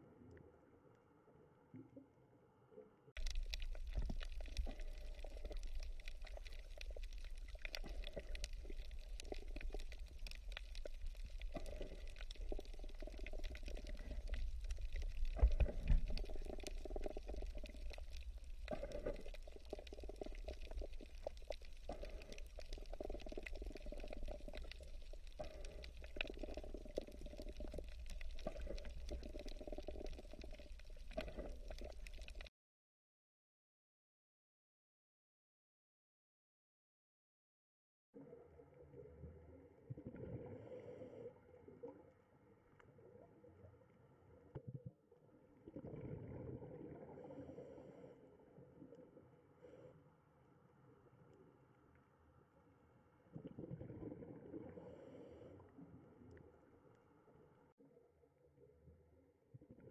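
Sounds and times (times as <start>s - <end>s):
water bubbling and gurgling: 3.2s - 32.5s, 38.2s - 49.9s, 53.2s - 56.8s, 58.6s - 59.9s.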